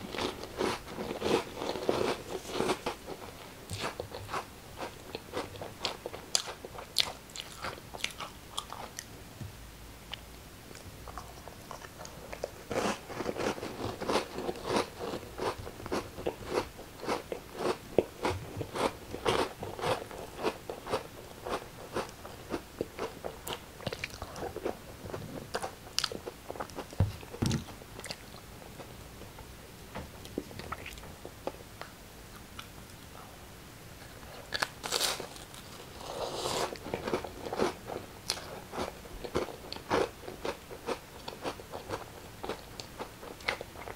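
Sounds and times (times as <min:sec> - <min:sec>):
chewing crackers: 0:00.1 - 0:09.1, 0:10.7 - 0:27.3.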